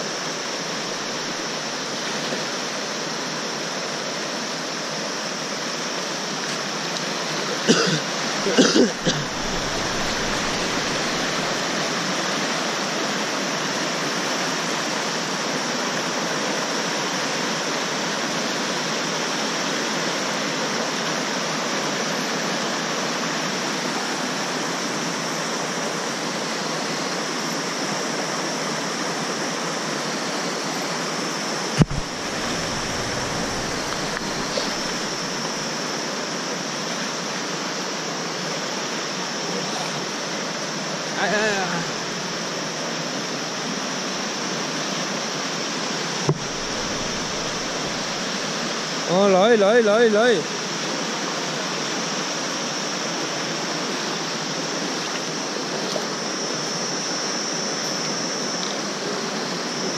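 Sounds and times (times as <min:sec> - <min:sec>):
river rushing over rocks: 0:00.0 - 0:59.9
brief knocks: 0:31.8 - 0:35.1, 0:46.3 - 0:48.2.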